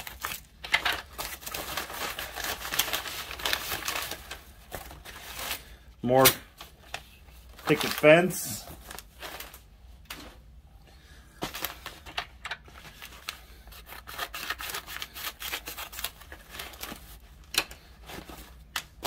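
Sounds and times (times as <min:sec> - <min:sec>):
plastic bags crinkling: 0:00.0 - 0:05.7, 0:06.6 - 0:09.7.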